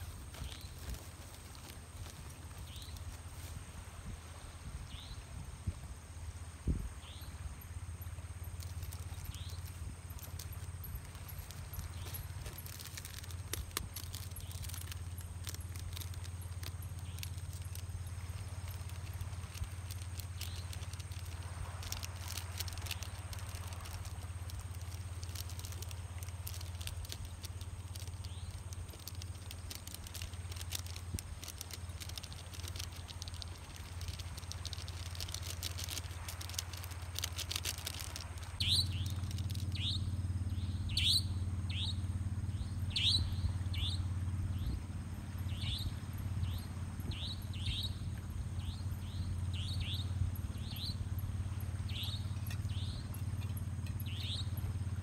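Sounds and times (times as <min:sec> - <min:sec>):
high insect tone: 0:00.0 - 0:55.0
steady low hum: 0:00.0 - 0:55.0
fine crackling: 0:08.5 - 0:40.0.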